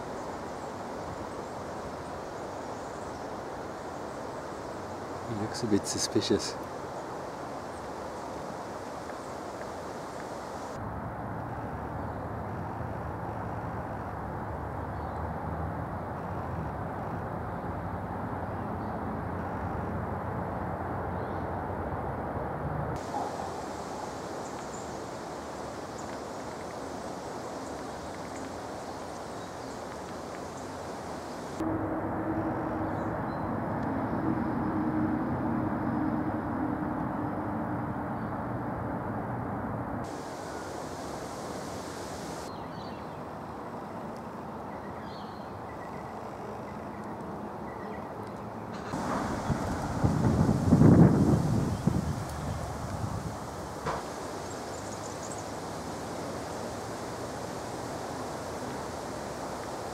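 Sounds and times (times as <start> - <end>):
steady hiss: 0.0 - 10.8, 23.0 - 31.6, 40.0 - 42.5, 48.8 - 59.9
distant traffic rumble: 0.0 - 42.6, 48.1 - 59.9.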